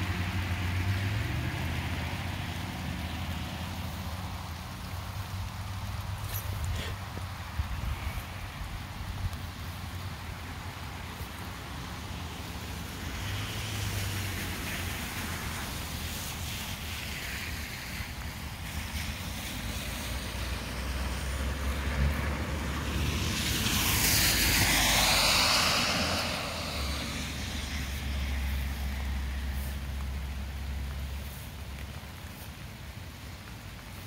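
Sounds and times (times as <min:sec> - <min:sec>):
tyres hissing on wet road: 0:00.0 - 0:34.0
wind rumble on microphone: 0:04.5 - 0:11.9.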